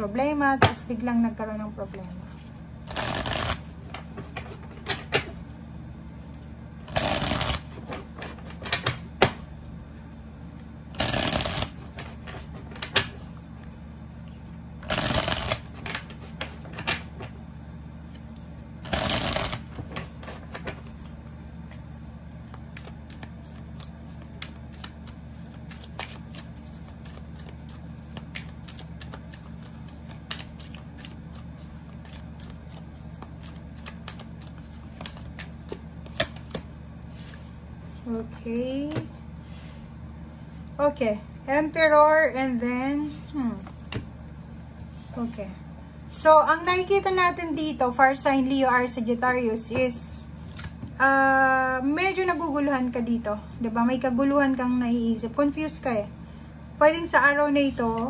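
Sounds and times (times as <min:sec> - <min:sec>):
cards riffle shuffled: 0:02.4 - 0:04.6, 0:06.3 - 0:09.0, 0:10.5 - 0:13.3, 0:14.3 - 0:17.1, 0:18.0 - 0:21.2, 0:21.8 - 0:36.7.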